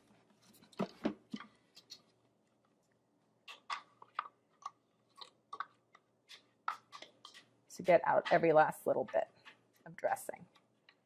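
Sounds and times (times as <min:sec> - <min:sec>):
spatula scraping plastic bowl: 0:05.1 - 0:11.0.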